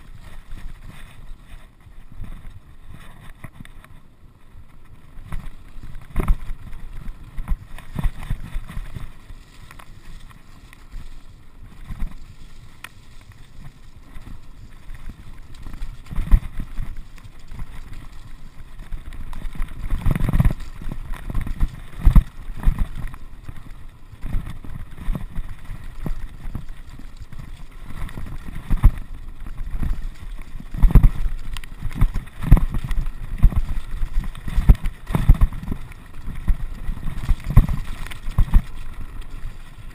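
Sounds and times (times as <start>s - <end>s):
mountain bike rattling over stones: 0.0s - 39.9s
wind buffeting microphone: 0.0s - 39.9s.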